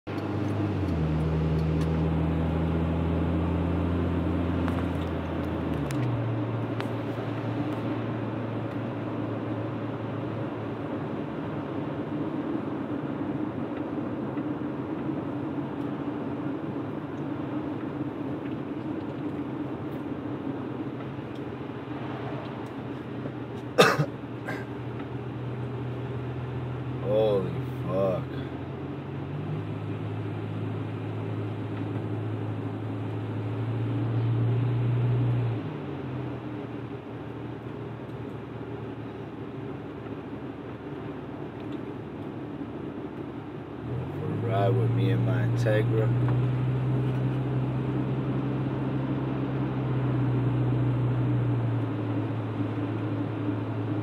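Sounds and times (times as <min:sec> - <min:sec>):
car engine humming: 0:00.0 - 0:54.0
tyre and road noise: 0:00.1 - 0:54.0
sharp cough: 0:23.8 - 0:24.7.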